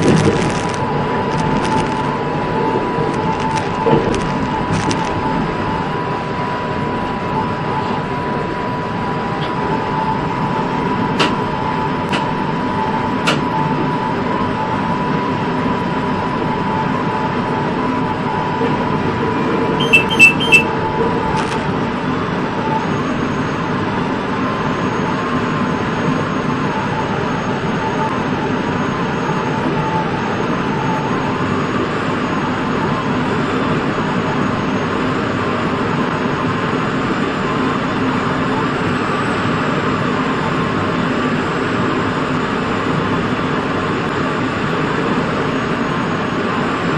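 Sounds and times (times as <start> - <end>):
steady whine: 0.0 - 46.9
train rumble and rail noise: 0.0 - 46.9
sharp ringing clicks: 19.8 - 20.6.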